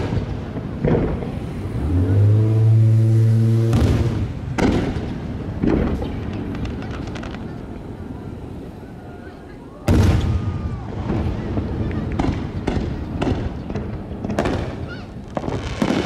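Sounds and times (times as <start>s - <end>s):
firework booms: 0.0s - 8.8s, 9.8s - 16.0s
faint firework crackle: 0.0s - 16.0s
low steady horn: 1.8s - 4.0s.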